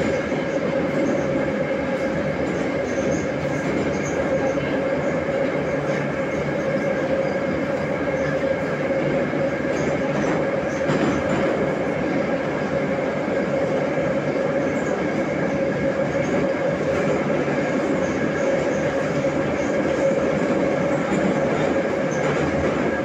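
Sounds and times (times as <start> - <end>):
metro train rumbling: 0.0 - 23.0.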